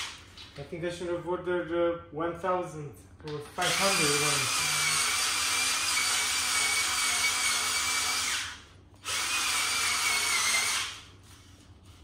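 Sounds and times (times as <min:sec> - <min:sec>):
power drill sanding tile: 0:03.6 - 0:08.3.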